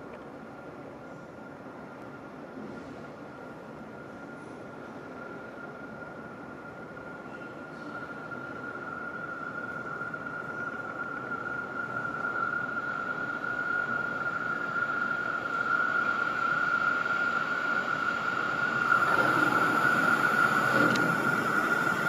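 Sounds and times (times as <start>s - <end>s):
train rolling rumble: 0.0s - 22.0s
high-pitched whine: 5.0s - 22.0s.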